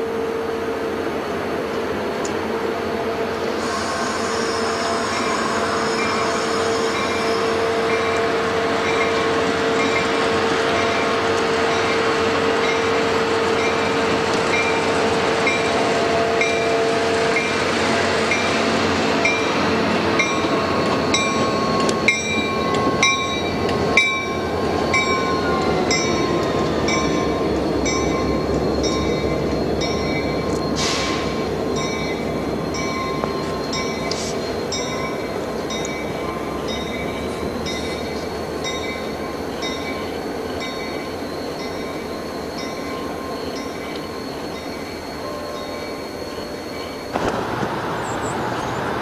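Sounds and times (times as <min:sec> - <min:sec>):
train rolling rumble: 0:00.0 - 0:49.0
faint high squeal: 0:03.6 - 0:08.2, 0:36.1 - 0:47.2.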